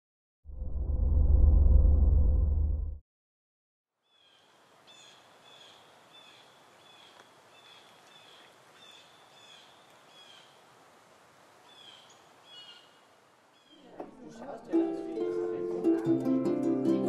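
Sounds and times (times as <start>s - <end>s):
bird chirping: 4.0s - 10.6s, 11.7s - 13.9s
faint outdoor ambience: 4.0s - 17.0s.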